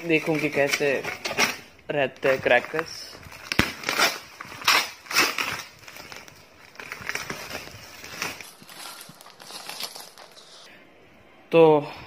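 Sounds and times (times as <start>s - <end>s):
plastic sacking rustling: 2.2s - 10.7s.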